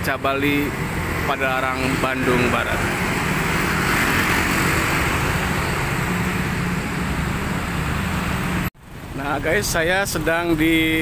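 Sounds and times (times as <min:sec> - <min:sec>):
cars passing: 0:00.0 - 0:11.0
scooters and motorcycles passing: 0:00.4 - 0:08.7.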